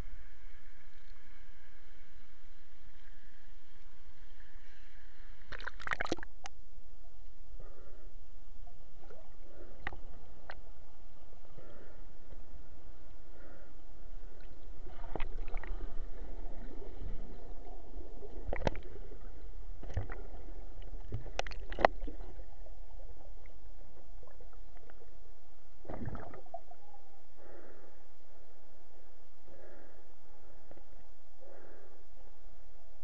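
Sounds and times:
underwater current rumble: 0:14.4 - 0:25.1
underwater clicks and knocks: 0:18.5 - 0:18.8, 0:21.0 - 0:22.2.

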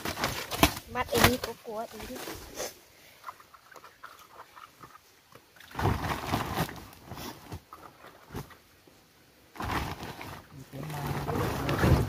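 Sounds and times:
bamboo shoots knocking and rustling: 0:00.0 - 0:02.6.

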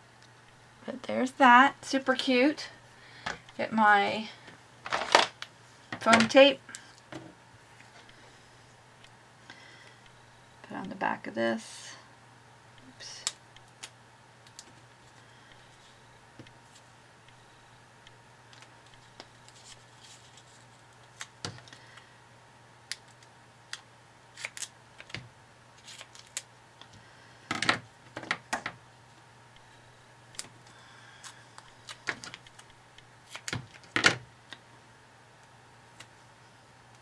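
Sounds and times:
tape and paper rustling: 0:18.5 - 0:21.8, 0:22.9 - 0:25.2, 0:25.8 - 0:26.5.

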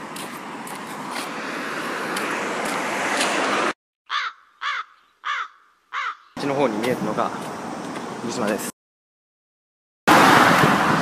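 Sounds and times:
street noise: 0:00.0 - 0:03.8, 0:04.6 - 0:08.8, 0:10.1 - 0:11.0
crow cawing: 0:04.1 - 0:06.4.

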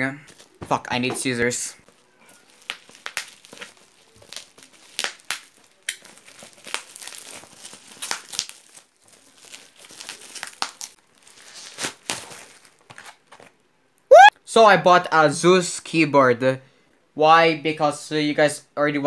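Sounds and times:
plastic mailer crinkling: 0:01.8 - 0:13.5.

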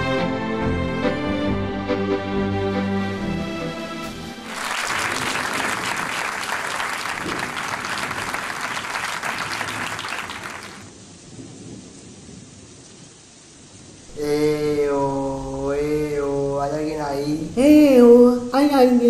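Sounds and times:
audience applauding: 0:04.4 - 0:10.9.

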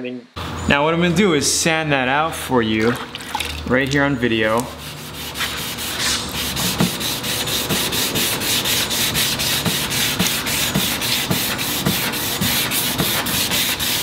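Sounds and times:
wet sanding strokes: 0:04.2 - 0:14.0.

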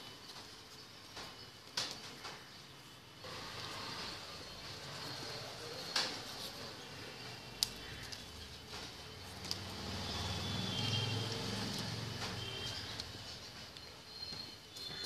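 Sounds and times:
faint high chirps: 0:12.3 - 0:15.0.

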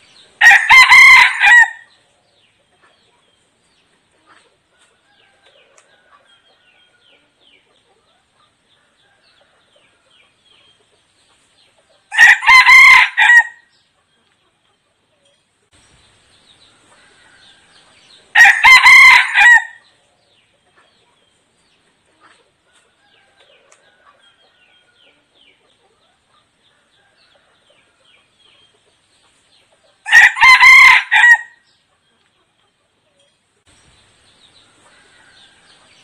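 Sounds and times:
rooster crowing: 0:00.4 - 0:01.9, 0:12.1 - 0:13.6, 0:17.0 - 0:19.8, 0:30.0 - 0:31.6.

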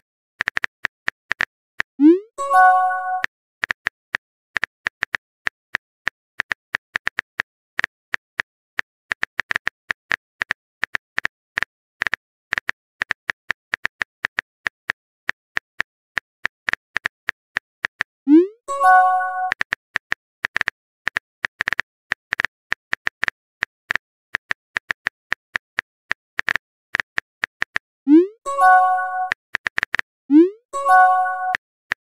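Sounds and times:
keyboard typing clicks: 0:17.9 - 0:23.2, 0:26.4 - 0:31.6.

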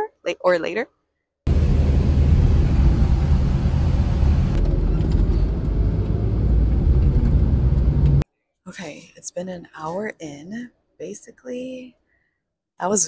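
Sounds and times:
bus engine and road noise: 0:01.5 - 0:08.2.

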